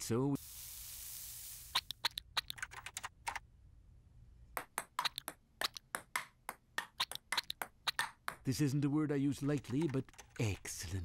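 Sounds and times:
computer keys typing: 2.0 - 3.4, 9.4 - 10.8
table tennis ball clicking: 4.6 - 8.5, 9.6 - 10.4.

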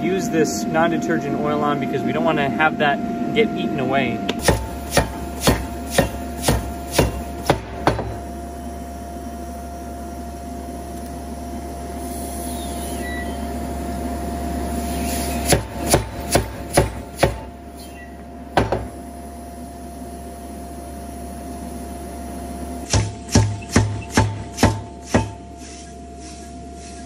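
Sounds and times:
steady low hum: 0.0 - 27.0
steam hammer striking steel: 4.4 - 8.2, 15.4 - 17.5, 22.8 - 25.5
hiss: 25.6 - 27.0.

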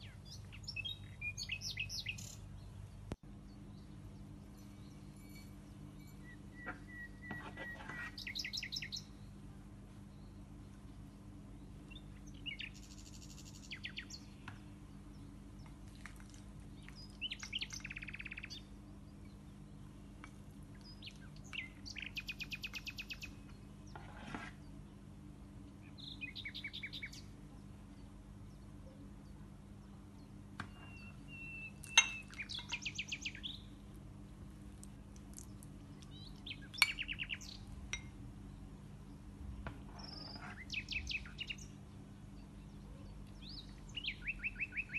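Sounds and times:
songbird trilling: 0.0 - 2.6, 3.7 - 9.3, 11.9 - 14.6, 16.8 - 18.7, 20.7 - 23.6, 25.8 - 27.3, 30.6 - 33.7, 36.0 - 38.7, 40.0 - 41.8, 42.4 - 44.9
steady low hum: 0.0 - 44.9
spoon clinking against glass: 31.9 - 32.4.

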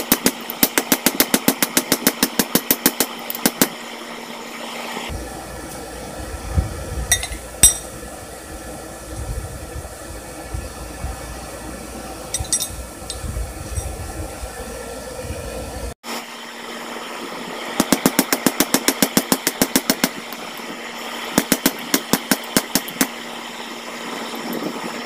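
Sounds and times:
steel clinking against an anvil: 7.1 - 7.9, 12.4 - 12.8.

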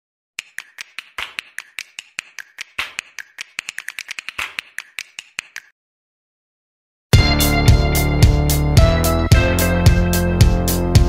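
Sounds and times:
rapid sharp clicks: 0.4 - 5.7.

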